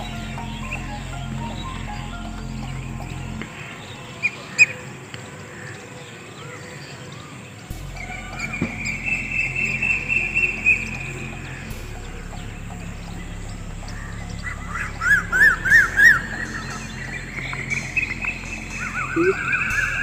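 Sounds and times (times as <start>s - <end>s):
bird chirps rising and falling: 7.8s - 20.0s.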